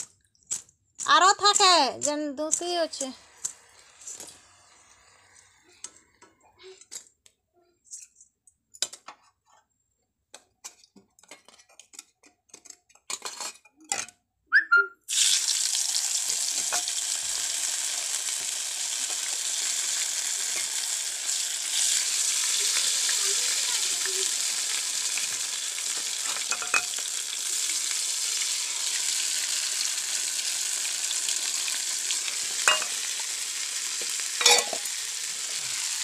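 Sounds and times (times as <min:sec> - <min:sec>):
batter sizzling on hot pan: 0:00.0 - 0:05.8, 0:15.1 - 0:36.0
kitchen utensils clinking: 0:10.7 - 0:14.2, 0:26.2 - 0:27.1, 0:32.6 - 0:33.2, 0:34.4 - 0:35.6.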